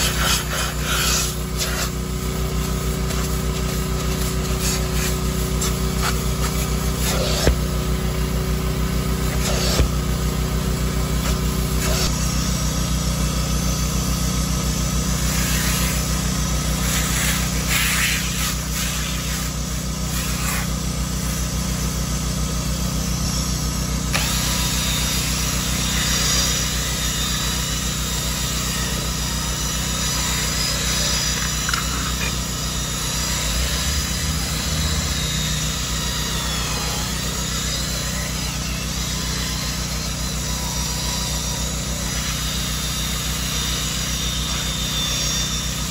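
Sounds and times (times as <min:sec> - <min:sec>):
carpet extractor motor: 0:00.0 - 0:45.9
cordless drill whirring: 0:00.0 - 0:45.9
scrub brush on fabric: 0:03.1 - 0:07.6, 0:09.4 - 0:09.8.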